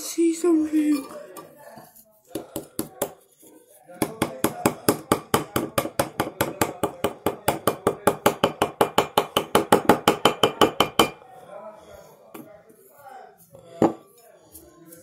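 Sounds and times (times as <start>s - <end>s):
toy hammer tapping on plaster: 2.3s - 3.2s, 3.9s - 11.2s.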